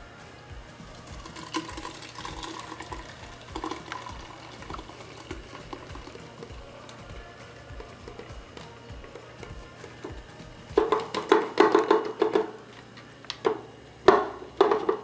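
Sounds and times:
juice pouring and splashing: 0:00.9 - 0:10.2.

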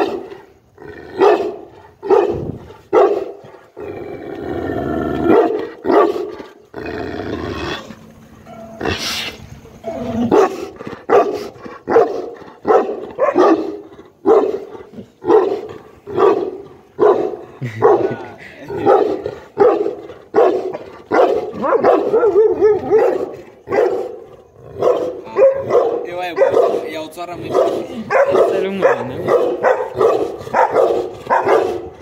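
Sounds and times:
dog barking: 0:00.0 - 0:00.4, 0:01.2 - 0:03.5, 0:05.3 - 0:06.3, 0:10.3 - 0:18.2, 0:18.8 - 0:32.0.

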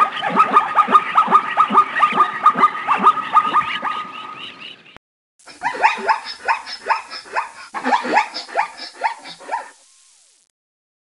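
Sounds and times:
zebra barking: 0:00.0 - 0:04.2, 0:05.5 - 0:09.8.

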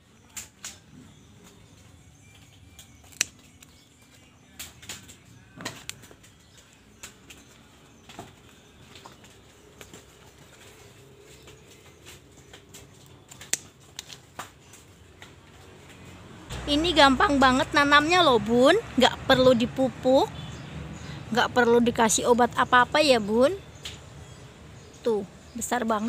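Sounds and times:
scissors snipping: 0:02.8 - 0:03.7, 0:13.3 - 0:14.2.

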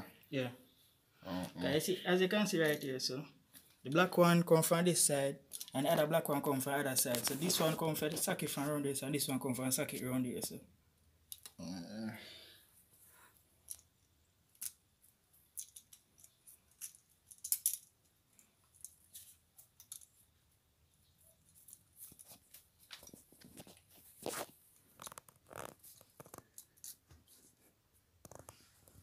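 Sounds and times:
outlet and wires clicking and scraping: 0:05.5 - 0:09.3, 0:14.5 - 0:20.3, 0:21.1 - 0:29.0.

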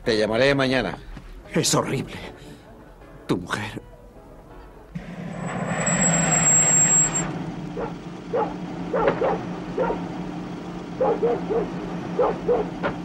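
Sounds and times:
high steady whine: 0:05.0 - 0:11.0
car engine and tyre noise: 0:05.0 - 0:13.0
dog yapping: 0:07.8 - 0:10.0, 0:11.0 - 0:12.8.

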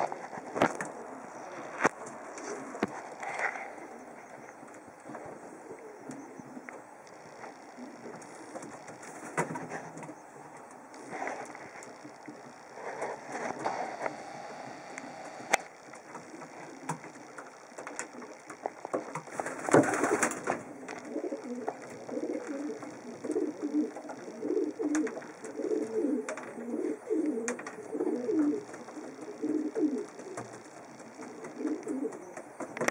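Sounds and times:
pigeon cooing: 0:00.0 - 0:10.3, 0:19.7 - 0:32.9
sharp clicks: 0:13.4 - 0:26.6.

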